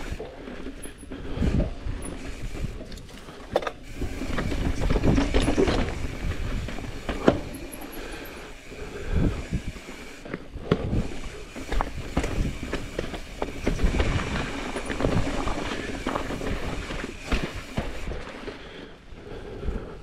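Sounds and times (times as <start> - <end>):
tyres rumbling on rock: 3.9 - 9.9, 10.7 - 18.4.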